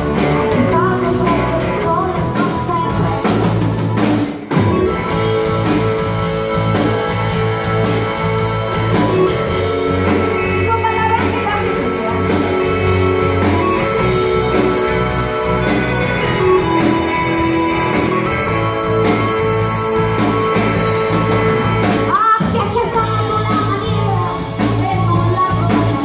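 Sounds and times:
drum kit: 0.0 - 26.0
electric guitar: 0.0 - 26.0
keyboard: 0.0 - 26.0
woman singing into a microphone: 0.4 - 3.6, 10.0 - 15.1, 21.9 - 26.0.

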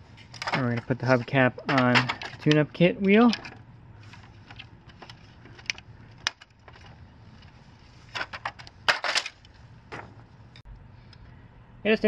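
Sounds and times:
parts clattering: 0.0 - 10.7
hard plastic parts clicking: 4.2 - 7.0.

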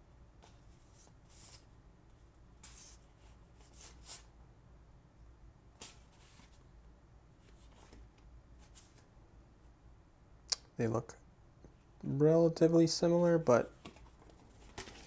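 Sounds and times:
card sheets sliding and rubbing: 0.4 - 1.7, 2.6 - 4.3, 5.8 - 6.6, 7.4 - 9.1.

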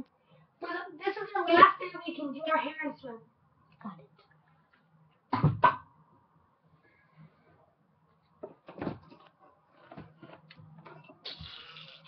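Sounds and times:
objects knocking: 8.4 - 11.0.

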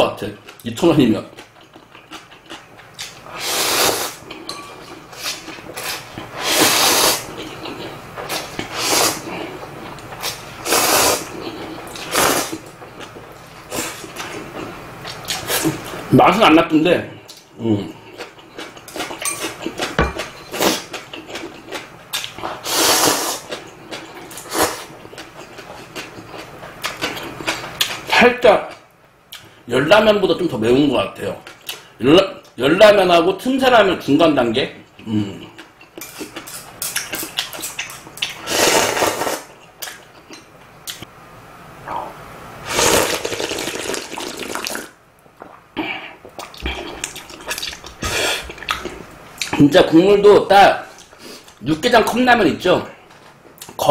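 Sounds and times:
chewing and mouth sounds: 1.3 - 3.2, 17.3 - 22.6, 23.4 - 28.1, 35.5 - 38.4, 46.2 - 49.6
loud slurp of noodles: 3.3 - 4.2, 5.8 - 7.3, 8.7 - 9.2, 10.6 - 11.3, 12.0 - 12.6, 22.6 - 23.4, 38.4 - 39.5, 42.6 - 45.0.

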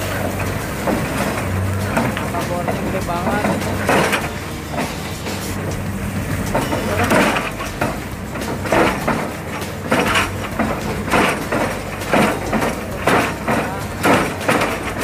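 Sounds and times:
drilling rig engine humming: 0.0 - 15.0
grinding and clanking: 0.0 - 15.0.

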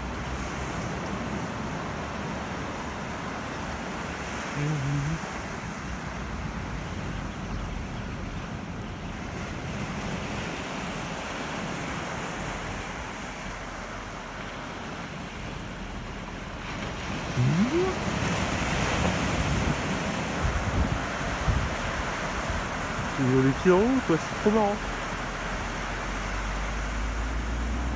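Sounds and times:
small waves breaking on beach: 0.0 - 27.9
short rising sound: 17.4 - 18.0.

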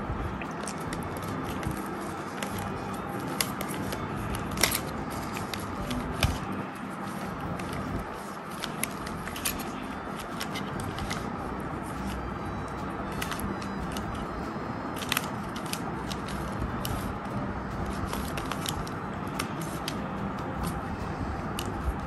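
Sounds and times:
plastic puzzle clicking: 0.5 - 6.5, 7.1 - 11.3, 13.1 - 14.3, 14.9 - 17.2, 17.8 - 20.0, 21.5 - 21.8.

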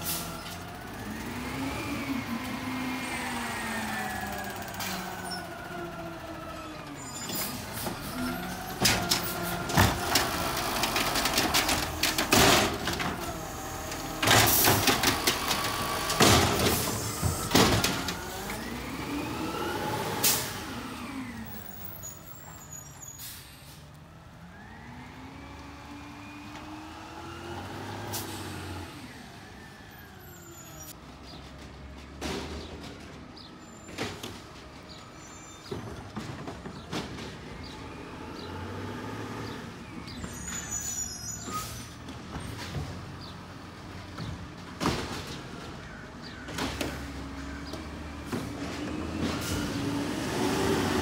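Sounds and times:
diesel engine revving: 0.0 - 22.5, 24.0 - 30.2, 37.1 - 44.4, 46.2 - 51.0
carts banging against hopper: 7.4 - 18.5
air brake hiss: 23.1 - 23.8.

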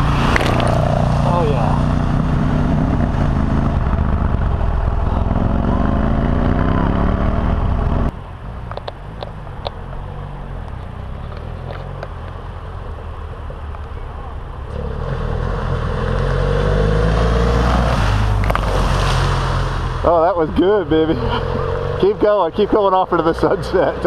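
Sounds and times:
motorcycle engine revving: 0.0 - 8.1, 14.6 - 22.7
distant engine: 0.0 - 24.0.

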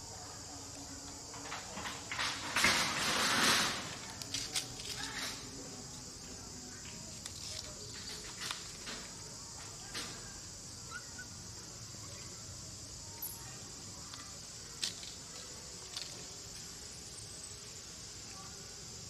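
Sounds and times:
insect chorus drone: 0.0 - 19.0.

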